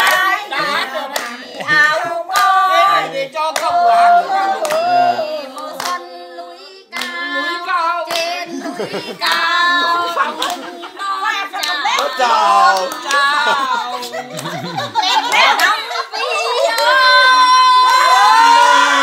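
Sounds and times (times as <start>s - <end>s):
people clapping: 0.0s - 6.2s, 6.9s - 19.0s
person singing: 0.0s - 14.9s.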